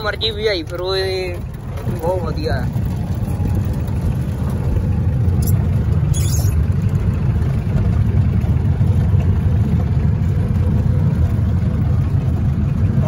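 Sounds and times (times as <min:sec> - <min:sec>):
jeep engine running: 0:00.0 - 0:13.0
short rattles: 0:05.3 - 0:06.8.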